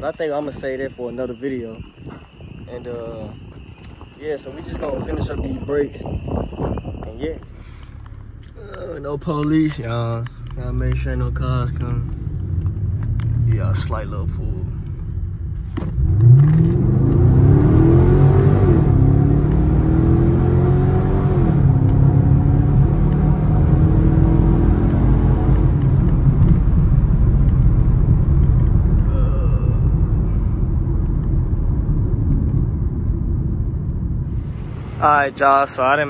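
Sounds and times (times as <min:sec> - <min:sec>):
loud car engine accelerating: 0:15.8 - 0:36.0.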